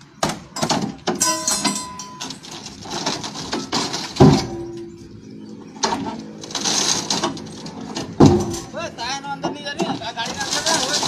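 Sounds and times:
outdoor background noise: 0:00.0 - 0:11.0
heavy thump with low ringing: 0:04.2 - 0:05.0.

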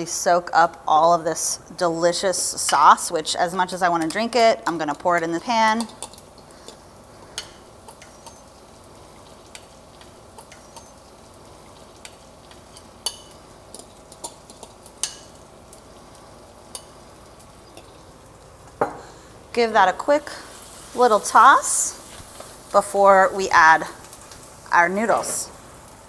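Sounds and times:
tofu sizzling in a frying pan: 0:00.0 - 0:26.0.

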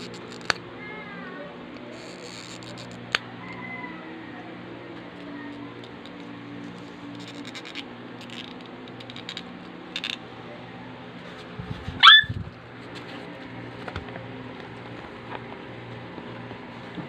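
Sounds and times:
plastic clicks and rustles: 0:07.2 - 0:10.2.

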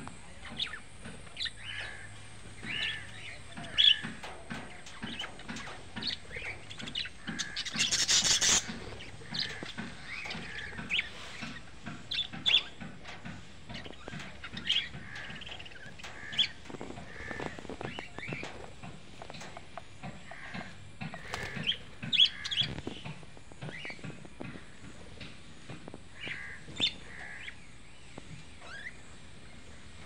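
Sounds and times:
budgerigars chirping: 0:00.4 - 0:24.0.

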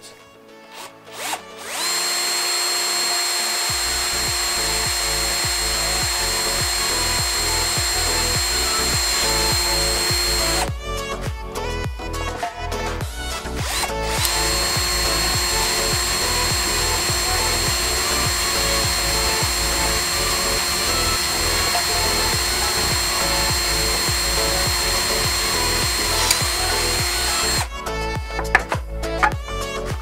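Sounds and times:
cordless drill motor whine: 0:01.1 - 0:10.7, 0:13.7 - 0:27.7.

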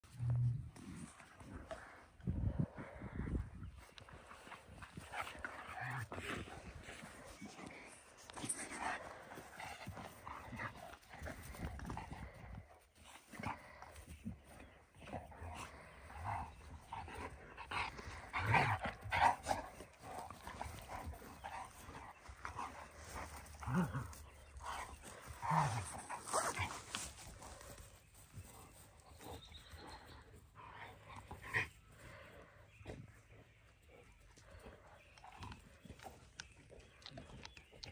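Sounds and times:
dogs vocalizing: 0:00.3 - 0:37.9.

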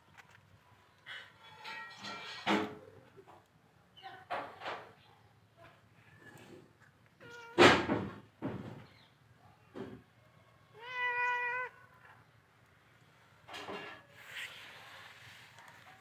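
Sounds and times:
cat meowing: 0:10.7 - 0:12.1.

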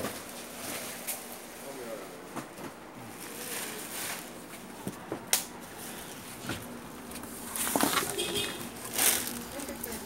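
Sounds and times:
plastic wrapping rustling: 0:03.0 - 0:04.8, 0:05.6 - 0:10.0.

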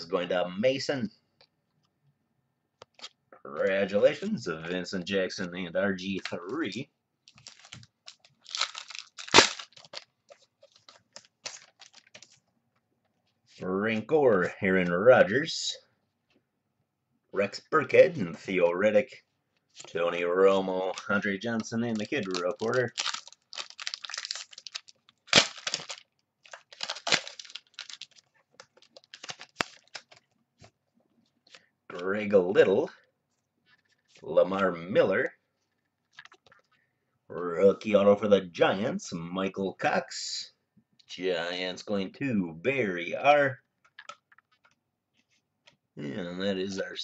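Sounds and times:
cards and packaging rustling: 0:06.0 - 0:12.5, 0:19.6 - 0:31.7, 0:35.6 - 0:36.8, 0:43.8 - 0:45.8
loud packaging crinkling crack: 0:07.3 - 0:12.4, 0:20.9 - 0:30.4.

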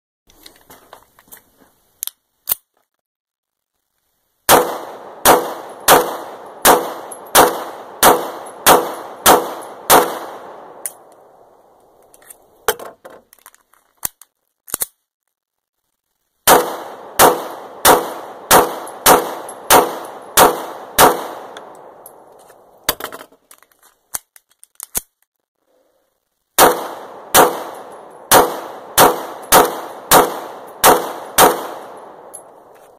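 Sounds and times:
pistol shots with echo: 0:04.5 - 0:11.5, 0:16.5 - 0:22.7, 0:26.6 - 0:32.7.

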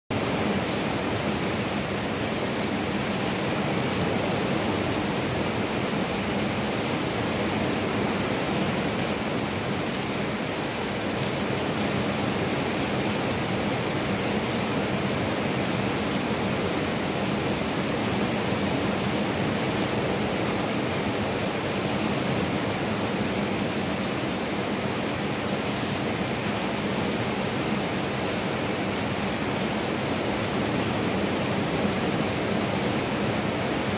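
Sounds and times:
heavy rain falling: 0:00.1 - 0:33.9.

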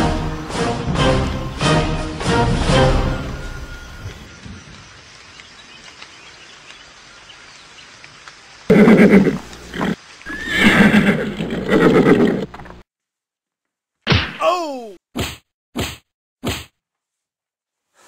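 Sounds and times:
horse neighing: 0:08.7 - 0:12.6.

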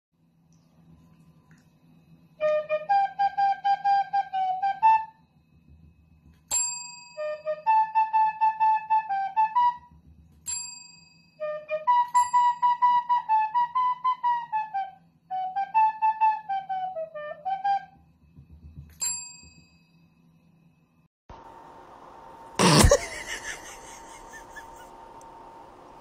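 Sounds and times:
faint steady hum: 0:00.2 - 0:04.3, 0:17.9 - 0:26.0
whistle tune: 0:02.4 - 0:05.3, 0:07.1 - 0:10.0, 0:11.3 - 0:18.1.

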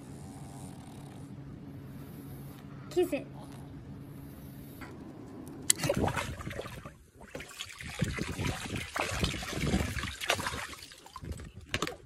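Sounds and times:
hose running into pool: 0:05.7 - 0:12.0
water splashing: 0:05.7 - 0:12.0.

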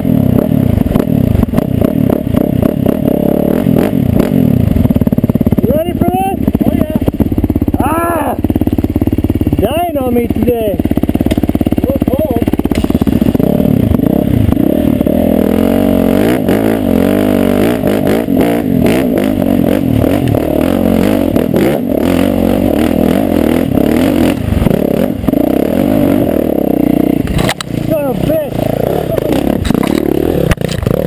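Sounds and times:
dirt bike engine revving: 0:00.0 - 0:31.0
knocks and clatter over rocks: 0:29.1 - 0:31.0.

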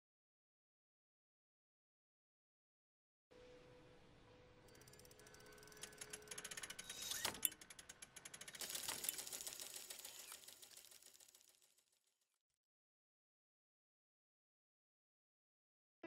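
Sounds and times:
clockwork ticking and whirring: 0:04.6 - 0:11.9.

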